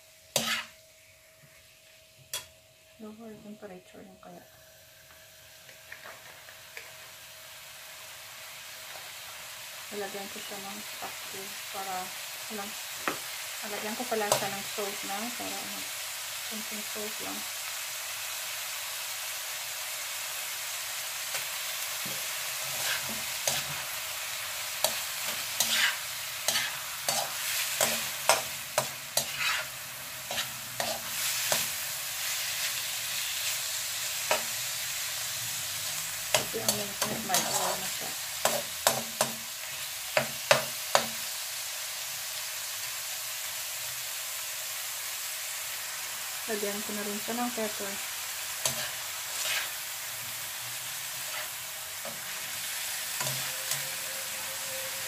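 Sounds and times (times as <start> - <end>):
meat sizzling in a frying pan: 0.0 - 3.2, 4.5 - 55.0
metal spatula scraping a pan: 0.3 - 0.8, 22.0 - 34.5, 35.9 - 39.8, 48.6 - 49.9, 51.1 - 55.0.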